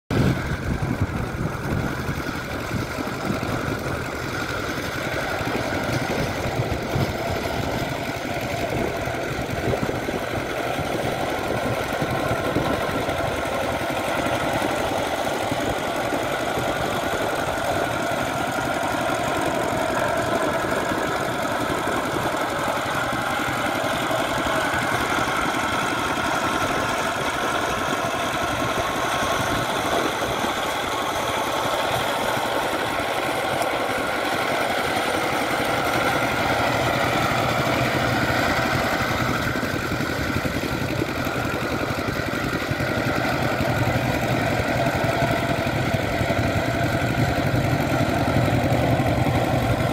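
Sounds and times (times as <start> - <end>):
diesel engine knocking: 0.1 - 49.9.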